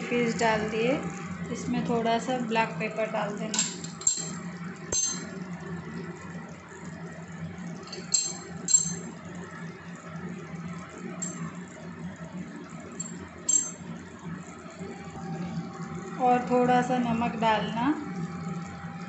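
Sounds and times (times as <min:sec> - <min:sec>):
clinks against metal pan: 0:05.0 - 0:05.3, 0:13.0 - 0:13.8.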